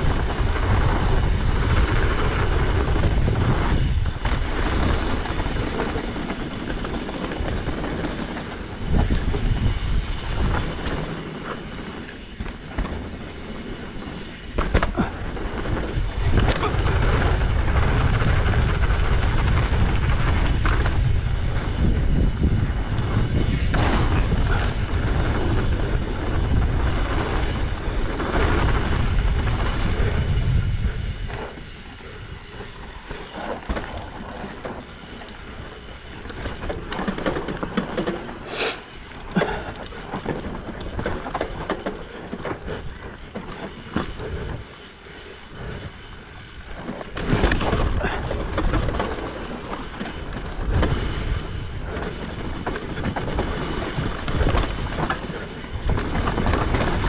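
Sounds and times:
bike clicking and rattling: 0:00.0 - 0:57.0
tyres rolling over dirt: 0:00.0 - 0:57.0
wind buffeting microphone: 0:00.0 - 0:57.0.

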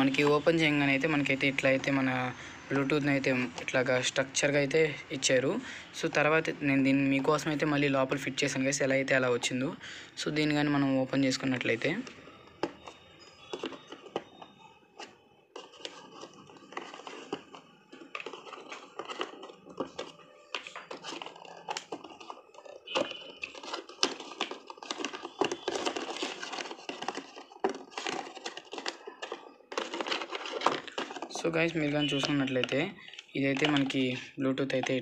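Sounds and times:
plastic packaging rustling: 0:10.6 - 0:35.0.

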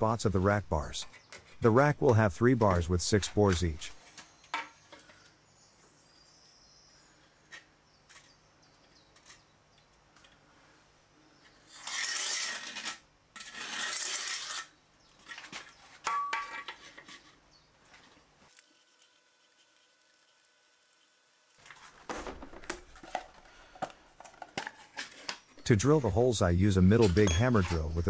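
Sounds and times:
marker scraping on plaster wall: 0:11.6 - 0:15.5.

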